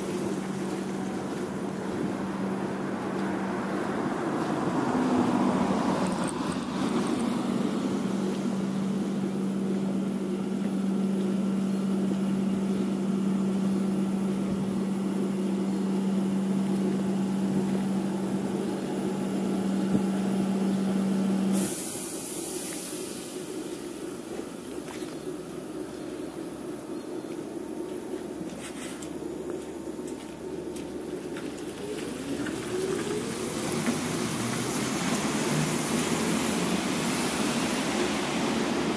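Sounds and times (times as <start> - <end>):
bus hum: 0.0 - 38.9
air hiss with high whistle: 21.6 - 23.2.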